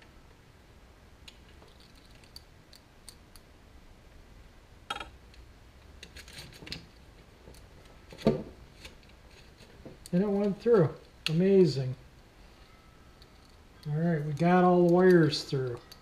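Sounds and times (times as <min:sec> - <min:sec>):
wires clicking and rustling: 0:01.2 - 0:03.5, 0:04.9 - 0:11.4, 0:13.1 - 0:16.0.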